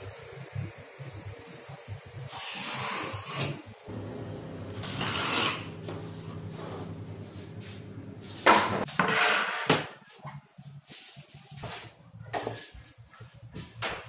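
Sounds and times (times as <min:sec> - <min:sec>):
knife scraping laminate: 0:04.8 - 0:05.8.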